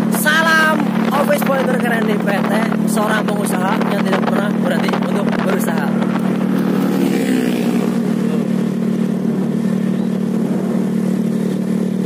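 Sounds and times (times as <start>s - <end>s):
motorcycle engine drone: 0.0s - 12.0s
road and wind noise: 0.0s - 12.0s.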